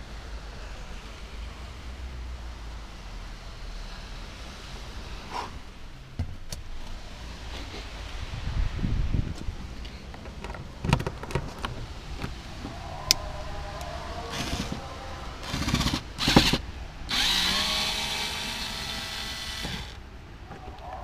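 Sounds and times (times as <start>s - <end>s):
cordless screwdriver whirring: 15.4s - 20.0s.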